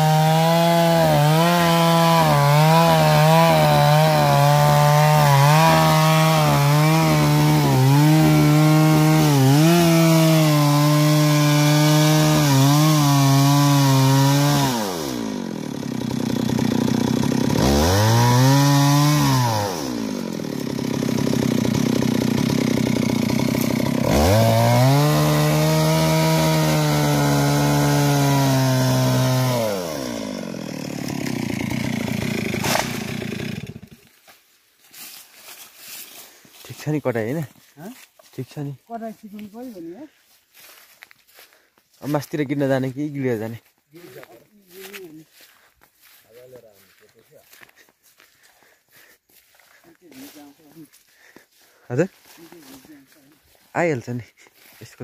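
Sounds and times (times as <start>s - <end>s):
chainsaw cutting wood: 0.0s - 35.1s.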